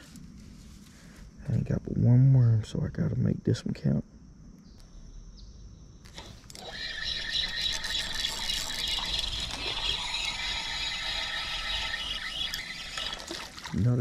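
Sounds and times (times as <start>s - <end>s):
fishing reel whirring: 6.1s - 13.7s.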